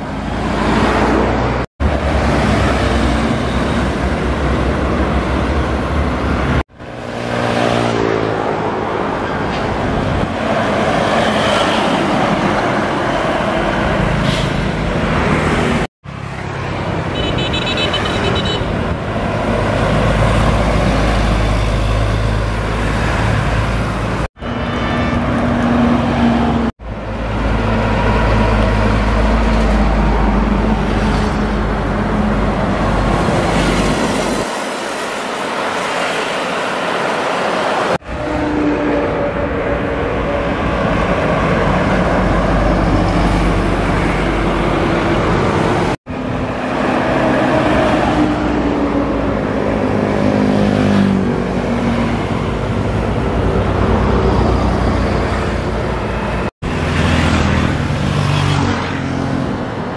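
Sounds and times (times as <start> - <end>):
coaches and trucks passing: 0.0 - 59.9
motorbikes passing: 15.0 - 59.9
vehicle horn: 17.1 - 18.7.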